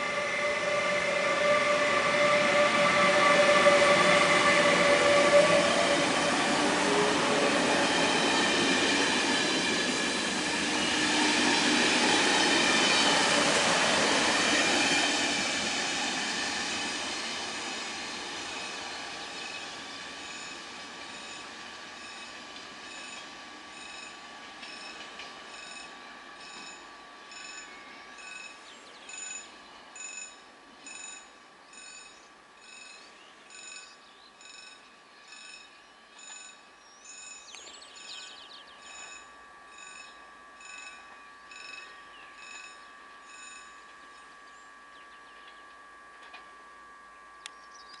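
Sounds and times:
steady high tone: 0.0s - 17.9s, 18.5s - 48.0s
electronic warning bell ringing: 20.3s - 45.2s.

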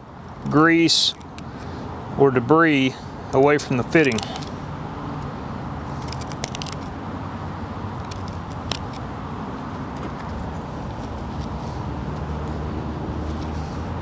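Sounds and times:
screwdriver clicking and scraping: 4.0s - 4.6s, 6.0s - 6.9s, 8.0s - 9.1s.

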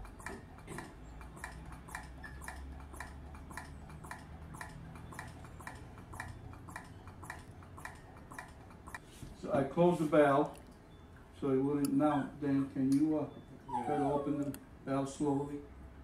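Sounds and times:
regular ticking: 0.0s - 9.0s.

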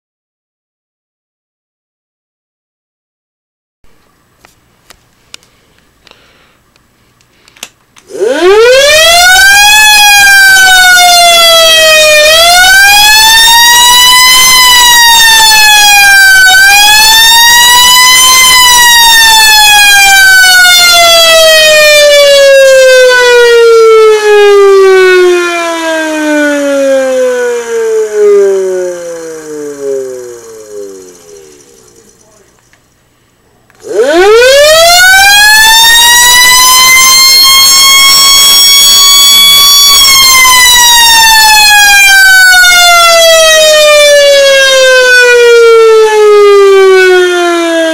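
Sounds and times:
electric siren wailing: 8.1s - 32.4s, 33.8s - 47.9s.

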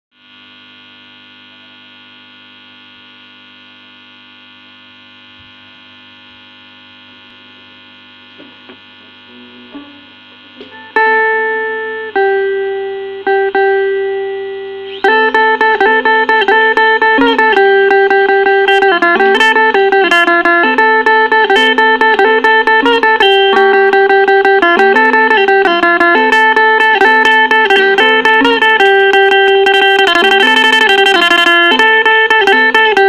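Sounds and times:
amplifier hum: 0.2s - 33.0s
electric string zither notes: 8.0s - 33.0s
fast strumming: 8.3s - 33.0s.

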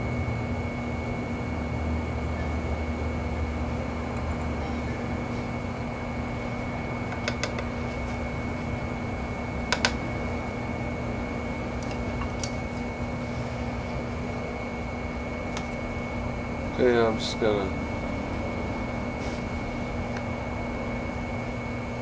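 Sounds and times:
steady machine hum: 0.0s - 22.0s.

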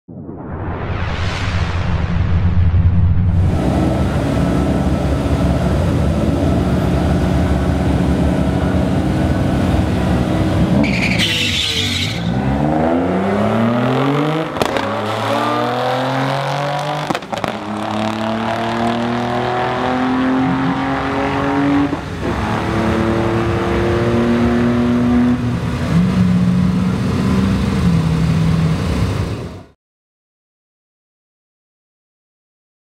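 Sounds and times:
car engines revving: 3.3s - 29.7s
exhaust pops: 14.5s - 15.0s, 17.0s - 17.9s.

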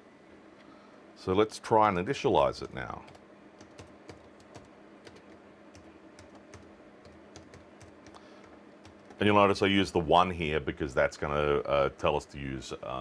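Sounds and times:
faint steady hum: 0.0s - 13.0s
keyboard keystrokes: 2.6s - 9.2s.

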